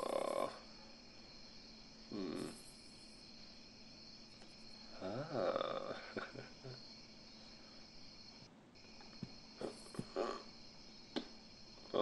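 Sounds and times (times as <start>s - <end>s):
crickets chirring: 0.0s - 12.0s
man chuckling: 5.1s - 6.8s.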